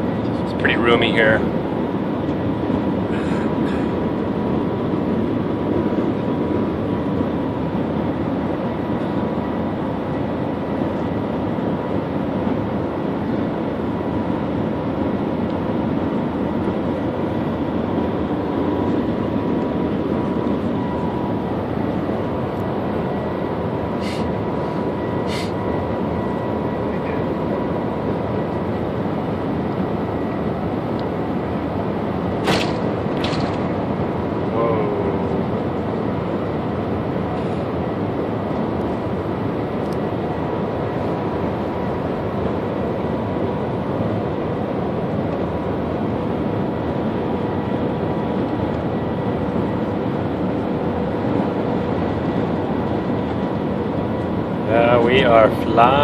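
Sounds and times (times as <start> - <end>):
faint steady whine: 0.0 - 56.0
train cabin rushing noise: 32.4 - 33.8.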